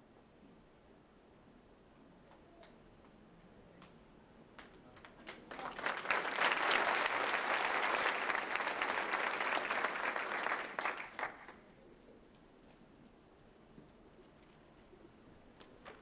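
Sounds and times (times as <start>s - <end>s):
audience applauding: 5.0s - 11.6s.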